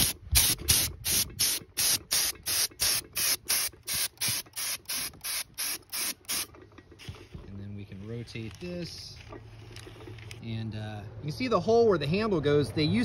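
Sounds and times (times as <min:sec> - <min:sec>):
spray gun hissing in spurts: 0:00.0 - 0:06.5.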